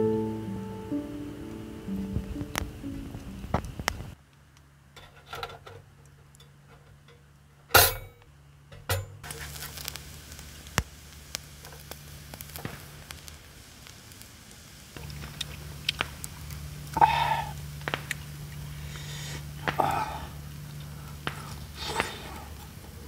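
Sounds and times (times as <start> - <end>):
metal grill plate clanking: 7.7 - 8.2
meat sizzling on grate: 9.2 - 23.0.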